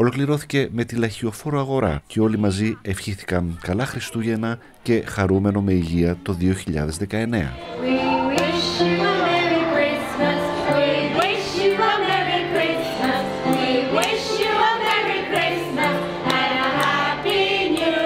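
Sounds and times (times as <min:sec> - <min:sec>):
instrumental accompaniment: 0:07.6 - 0:18.0
women singing together: 0:07.6 - 0:18.0
hand-clapping in time: 0:08.3 - 0:09.5, 0:10.2 - 0:18.0.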